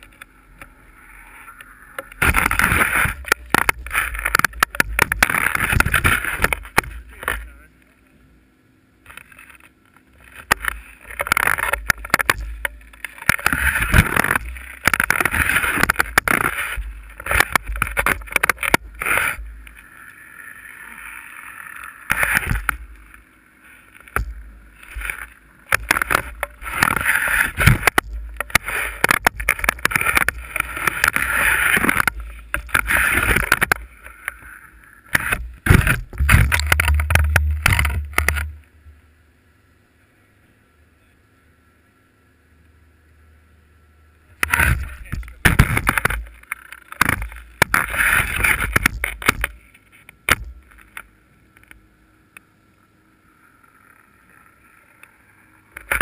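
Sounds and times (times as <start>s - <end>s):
steady low hum: 0.0s - 56.0s
ski scraping over snow: 0.3s - 7.6s, 10.2s - 38.5s, 44.4s - 49.4s.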